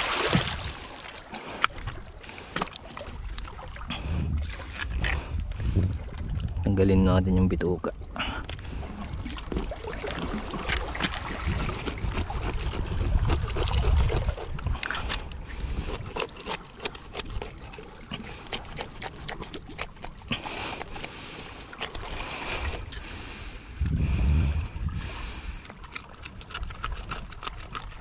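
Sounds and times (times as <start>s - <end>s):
seawater trickling and sloshing: 0.0s - 28.0s
wet clicks and scrapes of gutting fish: 1.3s - 6.6s, 9.4s - 23.9s, 24.6s - 28.0s
wind rumble on microphone: 3.9s - 7.6s, 10.2s - 16.2s, 23.7s - 25.7s.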